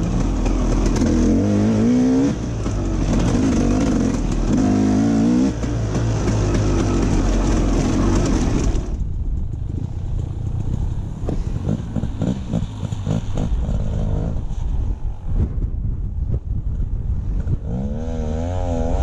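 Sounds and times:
dirt bike engine revving: 0:00.0 - 0:09.0, 0:11.4 - 0:14.6, 0:17.5 - 0:19.0
wind noise: 0:00.0 - 0:19.0.

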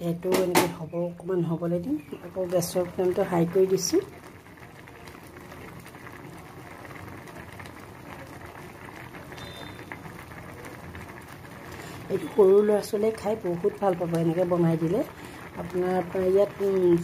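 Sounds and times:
noodles boiling in saucepan: 0:00.0 - 0:17.0.

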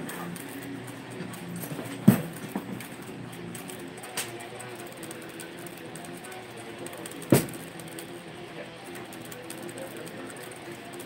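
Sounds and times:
room noise: 0:00.0 - 0:11.0.

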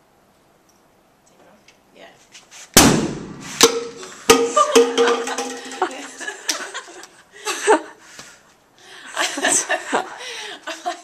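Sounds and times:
sharp knocks: 0:02.8 - 0:05.8
women laughing: 0:04.4 - 0:08.0, 0:08.9 - 0:11.0.

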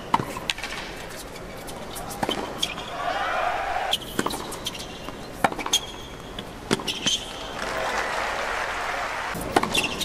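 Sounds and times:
shoe squeak: 0:03.9 - 0:07.3
racket hitting tennis ball: 0:04.0 - 0:05.9, 0:09.4 - 0:10.0
crowd applauding: 0:07.4 - 0:09.4.

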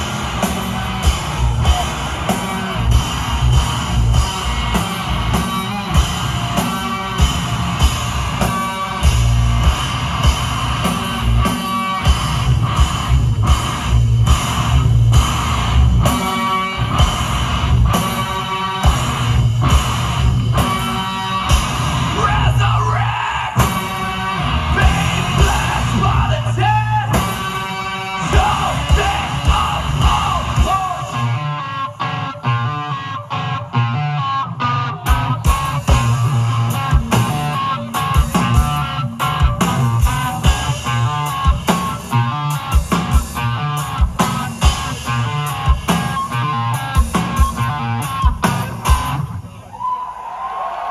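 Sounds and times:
pounding drum kit: 0:00.0 - 0:31.6, 0:35.0 - 0:49.6
distorted electric guitar: 0:00.0 - 0:49.7
person yelling vocals: 0:22.1 - 0:23.6, 0:24.7 - 0:27.2, 0:28.2 - 0:31.4.

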